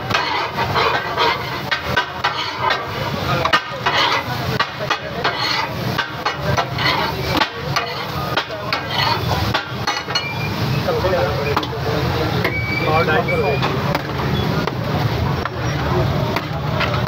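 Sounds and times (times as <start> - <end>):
steel spatulas clattering on griddle: 0.0 - 10.6.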